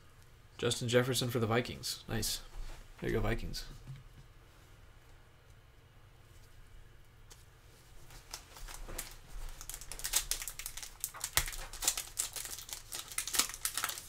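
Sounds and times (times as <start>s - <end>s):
foil wrapper crinkling: 8.1s - 14.0s.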